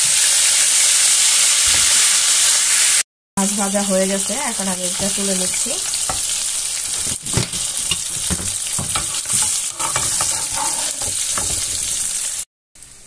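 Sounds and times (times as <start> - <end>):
fish sizzling in hot oil: 0.0 - 13.0
metal spatula scraping frying pan: 4.8 - 12.4.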